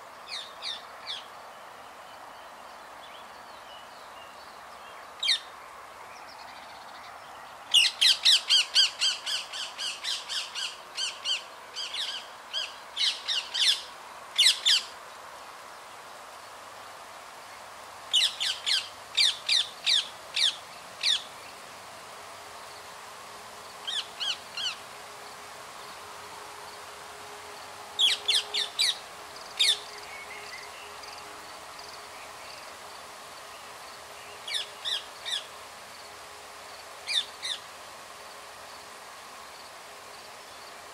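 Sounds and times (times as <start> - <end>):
parakeet squawking calls: 7.8 - 13.8, 14.4 - 14.9, 28.0 - 29.0.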